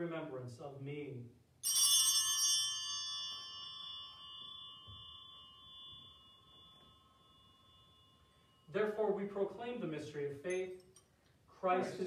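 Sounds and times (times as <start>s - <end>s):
small bell ringing: 1.6s - 9.0s, 10.4s - 11.3s.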